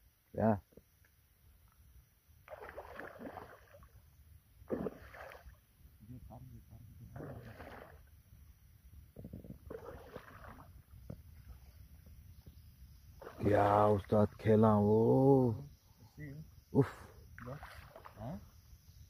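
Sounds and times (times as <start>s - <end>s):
fish splashing in water: 2.4s - 4.0s, 4.6s - 5.6s, 7.1s - 8.1s, 9.6s - 10.9s.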